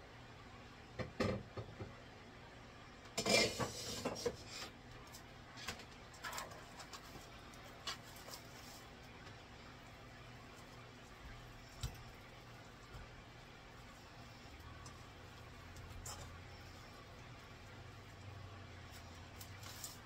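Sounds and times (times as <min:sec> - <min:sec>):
soft clicks and rustles: 0:04.8 - 0:20.0.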